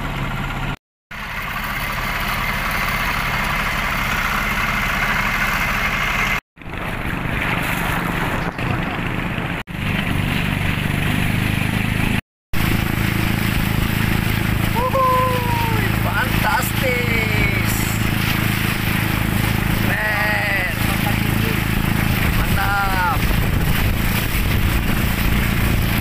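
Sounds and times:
engine humming steadily: 0:00.0 - 0:26.0.

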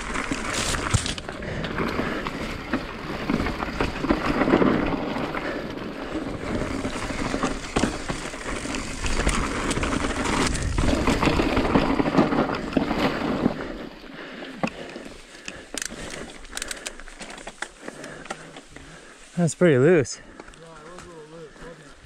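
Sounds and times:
bike rattling: 0:00.0 - 0:22.0
bike tyres on dirt: 0:00.0 - 0:22.0.

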